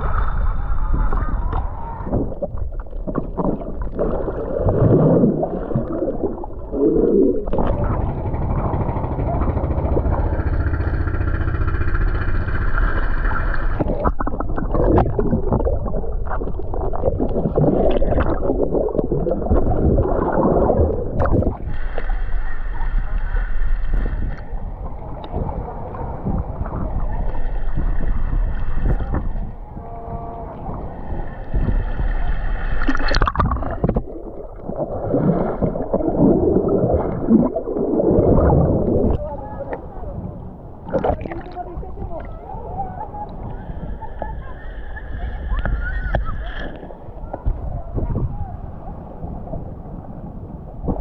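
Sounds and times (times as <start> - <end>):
water splashing and sloshing: 0.0 - 48.6
steady low rumble: 0.0 - 51.0
wind buffeting microphone: 23.9 - 32.5, 33.1 - 51.0.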